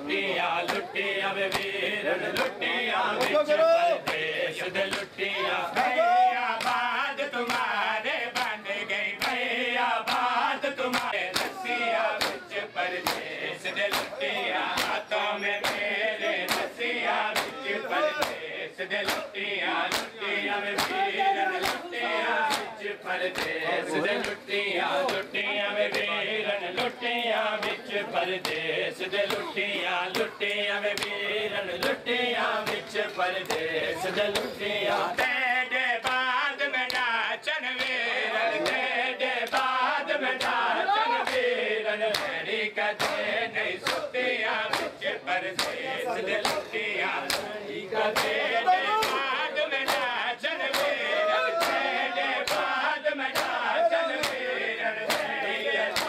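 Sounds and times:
men chanting: 0:00.0 - 0:56.0
hands slapping chests: 0:00.6 - 0:00.9, 0:01.5 - 0:02.6, 0:04.0 - 0:04.3, 0:04.9 - 0:05.1, 0:06.6 - 0:07.7, 0:08.3 - 0:08.6, 0:09.2 - 0:09.4, 0:10.0 - 0:13.3, 0:13.9 - 0:15.0, 0:15.6 - 0:15.9, 0:16.5 - 0:16.7, 0:17.3 - 0:17.6, 0:18.2 - 0:20.1, 0:20.7 - 0:21.9, 0:22.5 - 0:22.7, 0:23.3 - 0:23.6, 0:28.4 - 0:28.6, 0:30.1 - 0:31.2, 0:32.6 - 0:33.7, 0:36.9 - 0:37.1, 0:38.6 - 0:39.8, 0:40.4 - 0:40.6, 0:42.1 - 0:42.4, 0:43.0 - 0:45.0, 0:45.6 - 0:45.8, 0:46.4 - 0:48.4, 0:49.0 - 0:50.1, 0:50.7 - 0:51.0, 0:51.6 - 0:54.5, 0:55.1 - 0:56.0.

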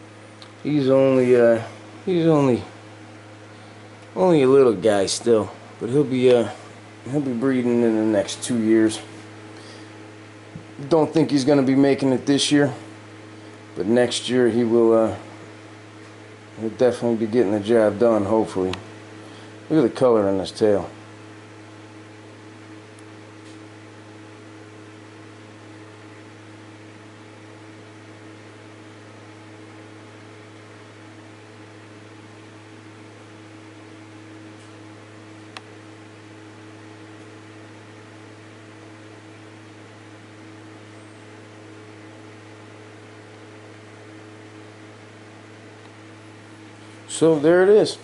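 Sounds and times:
electrical hum with hiss: 0:00.0 - 0:48.0
small sharp click: 0:35.5 - 0:35.7.

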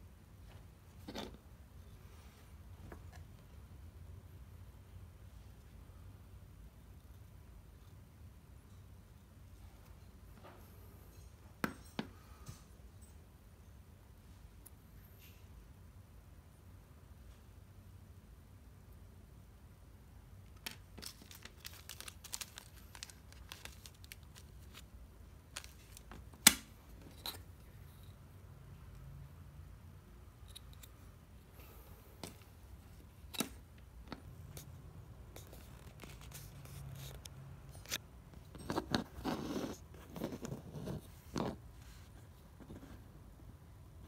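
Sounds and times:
plastic bags rustling: 0:20.6 - 0:24.8.

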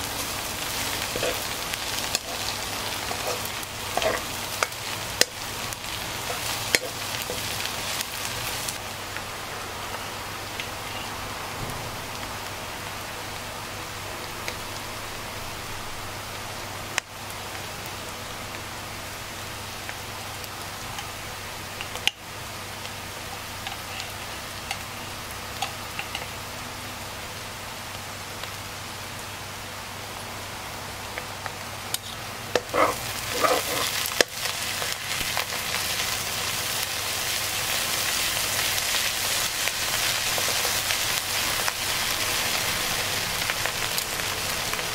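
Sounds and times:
food sizzling in oil: 0:00.0 - 0:11.3, 0:12.0 - 0:44.9
spatula scraping pan: 0:00.8 - 0:05.4, 0:32.6 - 0:34.2.

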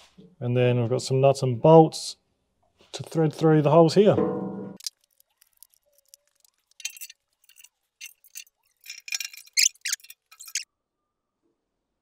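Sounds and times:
metal clinks and scrapes: 0:04.8 - 0:10.6.

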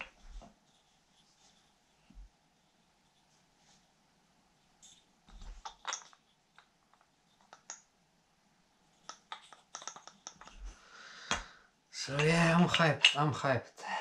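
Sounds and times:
wooden toy clicks and taps: 0:05.7 - 0:07.8, 0:09.1 - 0:10.6, 0:12.1 - 0:13.3.

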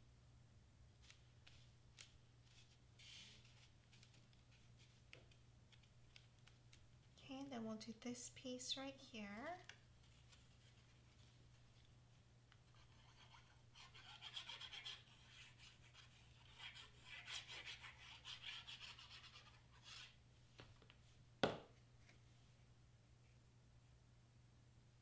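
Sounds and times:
glue stick rubbing on card: 0:01.0 - 0:06.8, 0:12.5 - 0:20.2.

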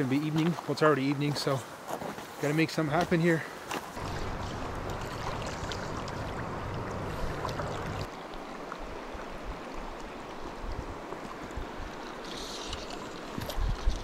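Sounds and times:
creek flowing over rocks: 0:04.0 - 0:12.2.

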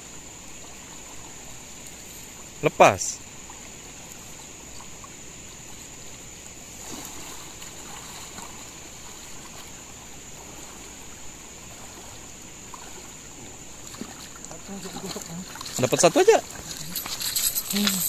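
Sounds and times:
river flowing over stones: 0:00.0 - 0:18.0
water splashing and dripping: 0:06.4 - 0:18.0.

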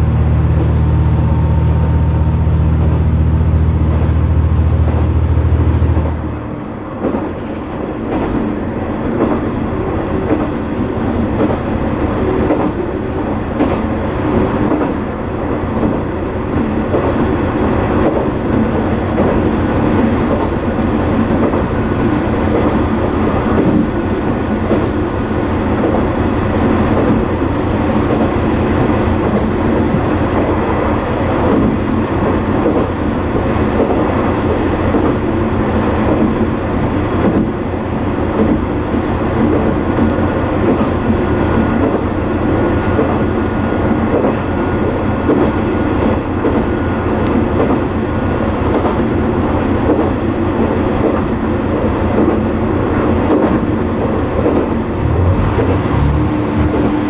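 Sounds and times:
train engine drone: 0:00.0 - 0:57.0
wheels on rails: 0:53.2 - 0:57.0.

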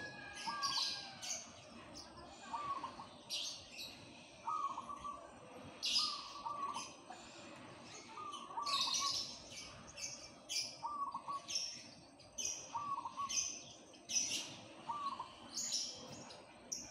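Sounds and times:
small birds chirping: 0:00.0 - 0:16.9
dove cooing: 0:04.4 - 0:05.2, 0:05.9 - 0:06.9, 0:12.7 - 0:13.4.

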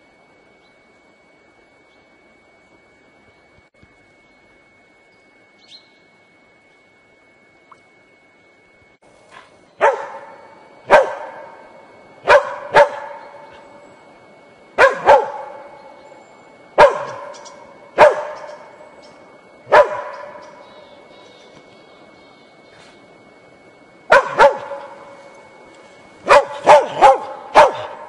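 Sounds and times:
dog barking with echo: 0:09.8 - 0:11.6, 0:12.2 - 0:13.4, 0:14.8 - 0:15.6, 0:16.8 - 0:18.6, 0:19.7 - 0:20.5, 0:24.1 - 0:25.0, 0:26.2 - 0:28.0.

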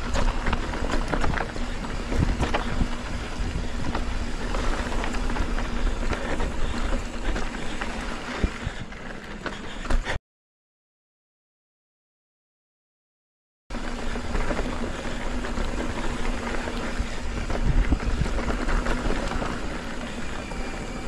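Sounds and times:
wind buffeting microphone: 0:00.0 - 0:09.0, 0:13.8 - 0:21.0
bike rattling on rough ground: 0:00.0 - 0:10.2, 0:13.7 - 0:21.0.

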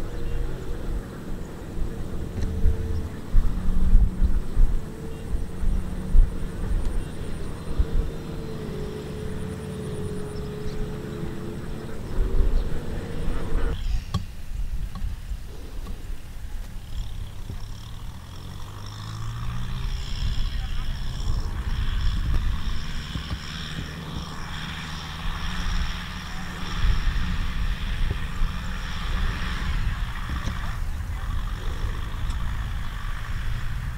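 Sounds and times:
tractor diesel engine droning: 0:00.0 - 0:33.9.

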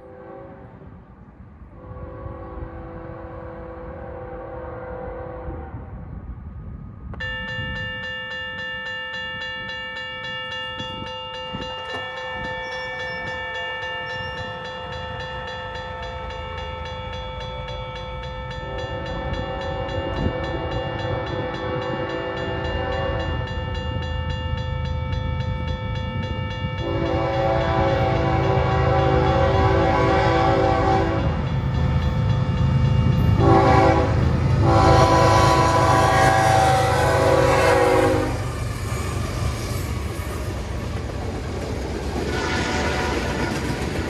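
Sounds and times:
train horn: 0:00.0 - 0:01.0, 0:01.7 - 0:06.2, 0:18.5 - 0:23.8, 0:26.8 - 0:32.0, 0:33.2 - 0:39.1, 0:42.2 - 0:43.7
rumble of oncoming train: 0:00.0 - 0:44.0
railroad crossing bell ringing: 0:07.0 - 0:44.0.

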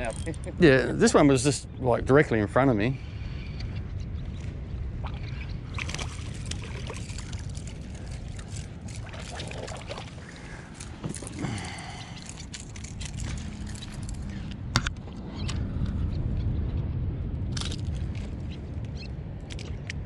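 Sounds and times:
wind buffeting microphone: 0:00.0 - 0:20.0
water splashing and lapping: 0:05.0 - 0:14.3.

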